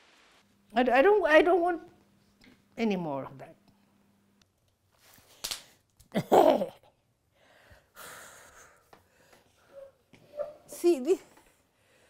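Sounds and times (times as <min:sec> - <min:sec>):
woman breathing hard: 0:07.3 - 0:09.9.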